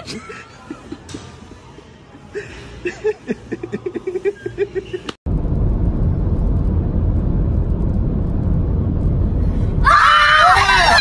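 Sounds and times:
car cabin road rumble: 0:05.3 - 0:09.8.

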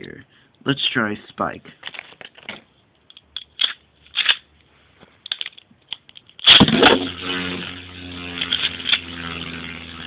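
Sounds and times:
spinning top clicks and scrapes: 0:03.1 - 0:04.5, 0:05.2 - 0:10.0
ripcord launch: 0:06.4 - 0:10.0
spinning top humming: 0:06.4 - 0:10.0.

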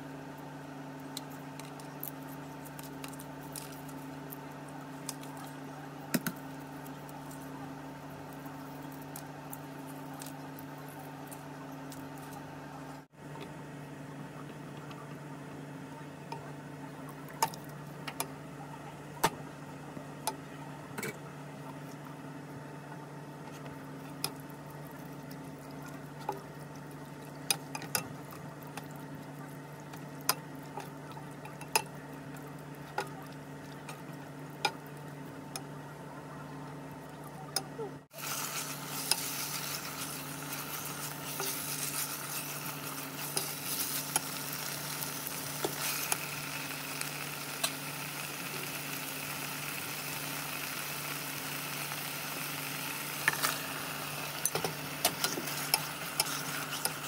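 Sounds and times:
steady hum with held tones: 0:00.0 - 0:57.0.

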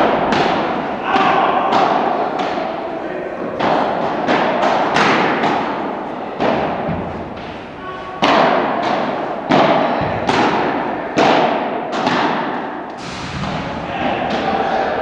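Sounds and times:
padel ball struck by rackets: 0:03.6 - 0:05.7.

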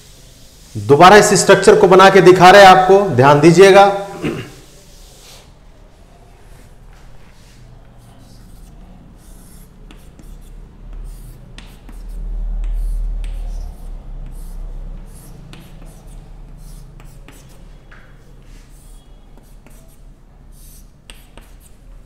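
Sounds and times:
chalk scratching on chalkboard: 0:04.6 - 0:05.6, 0:06.6 - 0:22.0.

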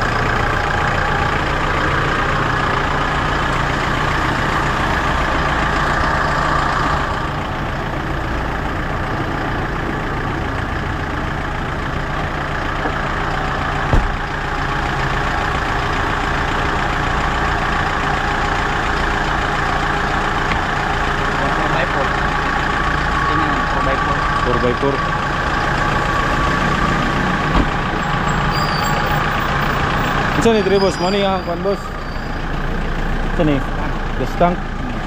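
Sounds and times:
diesel engine idling: 0:00.0 - 0:35.0
seat thumping shut: 0:13.9 - 0:14.2, 0:27.5 - 0:27.8.

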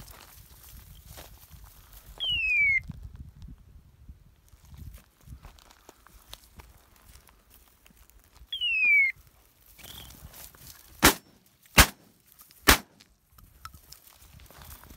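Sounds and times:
sharp falling whistle: 0:02.2 - 0:02.8, 0:08.6 - 0:09.1, 0:09.8 - 0:10.2
shotgun shots: 0:11.0 - 0:13.0.

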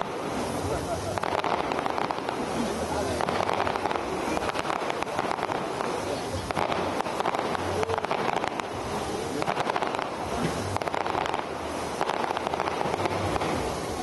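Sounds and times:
fireworks bursting: 0:00.0 - 0:14.0.

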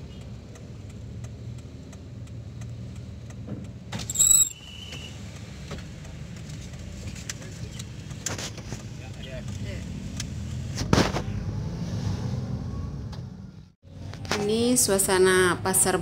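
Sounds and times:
car engine humming: 0:00.0 - 0:14.3
shrill whistle blast: 0:04.1 - 0:05.1.

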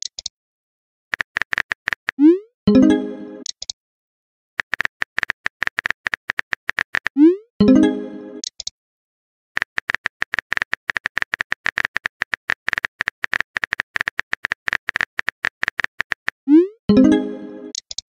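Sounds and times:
phone keyboard typing clicks: 0:01.1 - 0:02.2, 0:03.4 - 0:03.8, 0:04.6 - 0:07.2, 0:08.4 - 0:08.7, 0:09.6 - 0:16.4
message chime: 0:02.7 - 0:03.4, 0:07.6 - 0:08.4, 0:16.9 - 0:17.7.

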